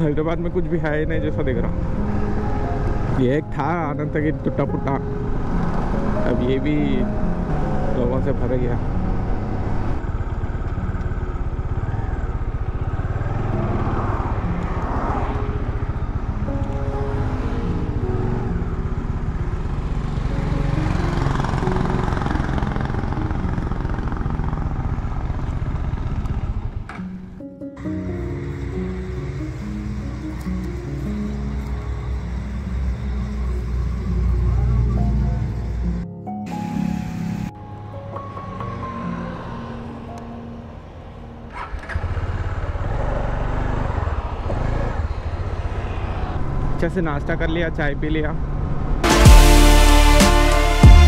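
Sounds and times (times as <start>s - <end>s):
wind and road noise: 0.0s - 49.1s
motorcycle engine running: 7.4s - 14.6s, 15.4s - 27.4s, 28.4s - 37.5s, 41.5s - 45.8s.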